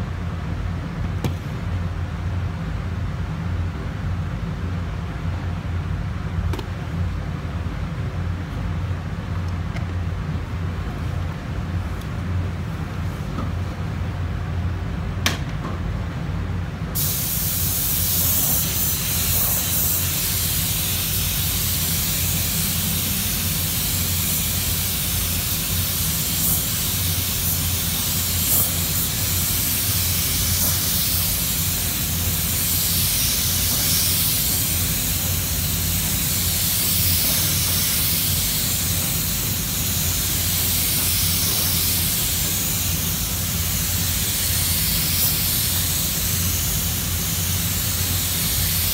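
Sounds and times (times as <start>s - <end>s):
paint spray gun hissing: 17.0s - 48.9s.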